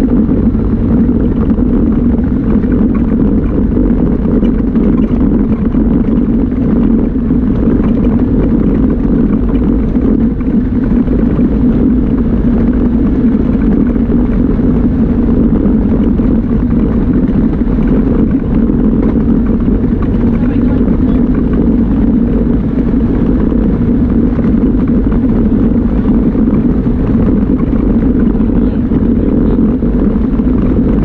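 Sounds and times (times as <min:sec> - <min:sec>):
vehicle engine droning while driving: 0:00.0 - 0:31.0.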